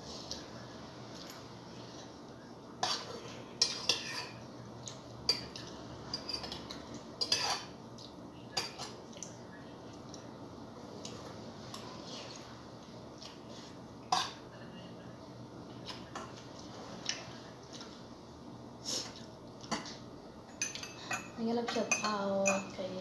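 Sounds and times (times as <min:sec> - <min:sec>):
low background hum: 0:00.0 - 0:23.0
cutlery clinking on ceramic bowl: 0:19.7 - 0:22.8.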